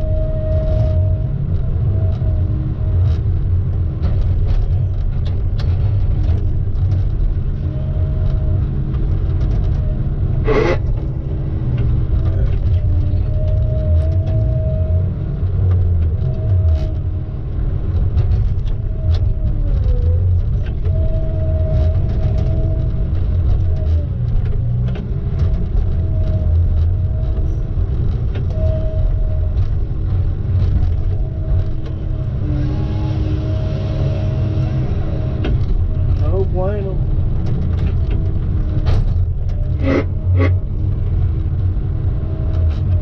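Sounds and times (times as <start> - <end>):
vehicle engine rumble: 0.0 - 43.0
small clicks and rattles: 15.5 - 32.4, 35.4 - 43.0.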